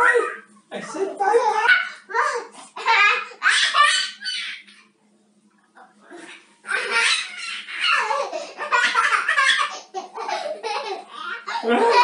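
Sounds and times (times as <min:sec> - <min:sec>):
child squealing and laughing: 0:03.1 - 0:04.8, 0:06.6 - 0:10.4.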